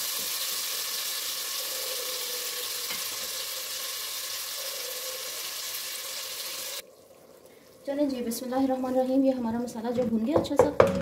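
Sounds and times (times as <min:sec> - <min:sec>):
food sizzling in oil: 0:00.0 - 0:07.2.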